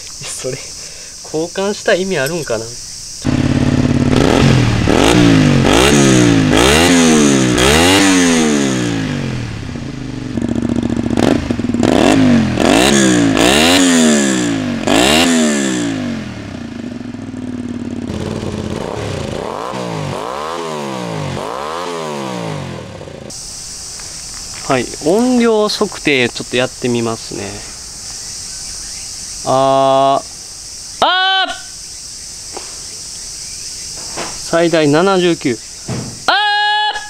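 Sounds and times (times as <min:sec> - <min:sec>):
motorcycle engine revving: 0:03.1 - 0:23.6.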